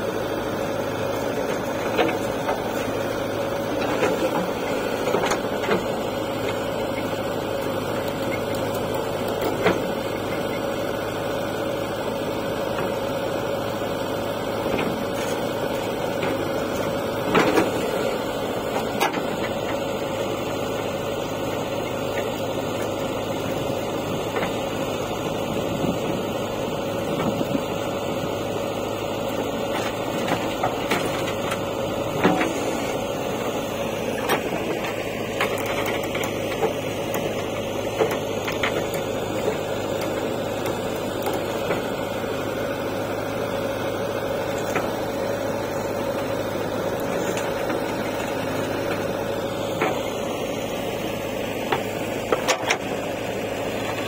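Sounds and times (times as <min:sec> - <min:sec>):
diesel engine running with whine: 0:00.0 - 0:54.0.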